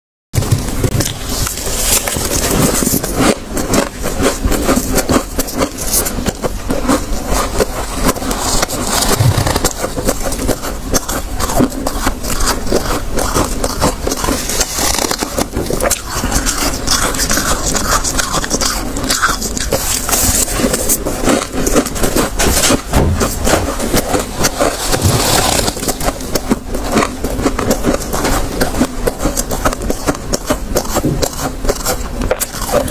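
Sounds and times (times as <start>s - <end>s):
chewing crunchy frost: 0.4s - 32.9s.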